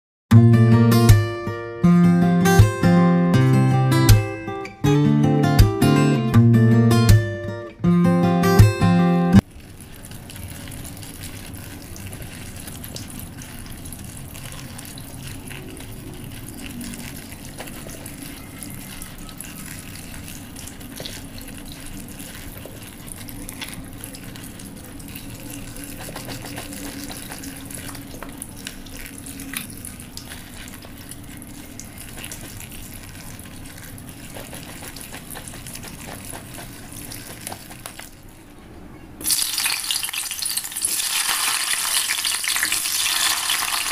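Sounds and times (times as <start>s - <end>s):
tap water running and splashing: 9.4s - 38.2s, 39.2s - 43.9s.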